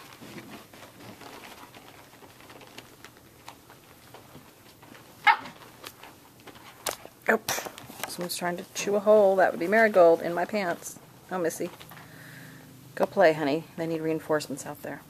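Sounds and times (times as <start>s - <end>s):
puppies scuffling and clicking: 0.0s - 12.2s
puppy yapping: 5.2s - 5.6s.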